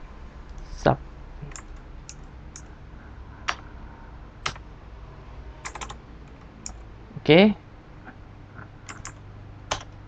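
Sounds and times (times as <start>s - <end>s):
keyboard keystrokes: 4.4s - 4.6s, 5.6s - 6.8s, 8.6s - 10.0s.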